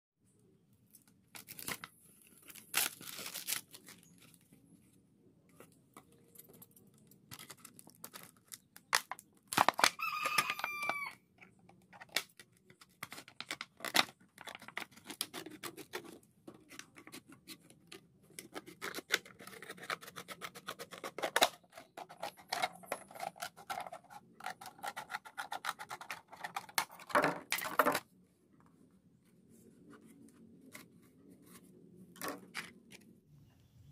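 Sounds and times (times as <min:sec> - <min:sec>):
scissors snipping plastic: 0:11.9 - 0:27.6.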